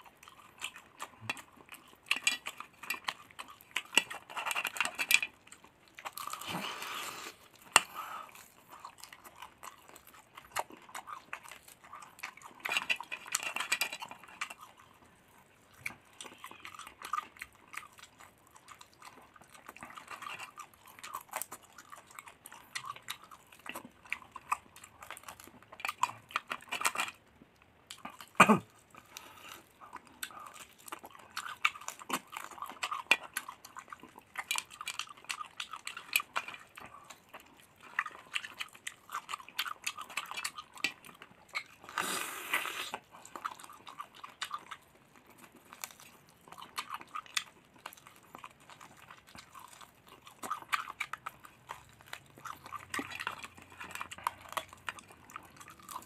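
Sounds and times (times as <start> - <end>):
person chewing crunchy food: 0.0 - 56.0.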